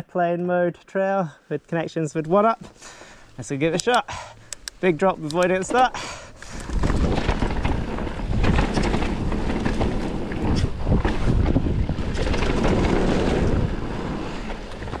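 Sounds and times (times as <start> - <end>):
bike tyres rolling on dirt: 4.8 - 15.0
bike knocks and rattles: 5.4 - 15.0
wind buffeting microphone: 5.8 - 15.0.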